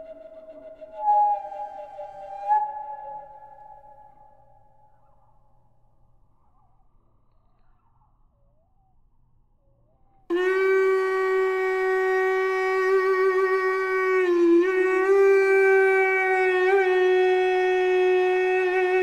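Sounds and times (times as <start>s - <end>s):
wind instrument long note: 0.0s - 4.3s, 10.3s - 19.0s.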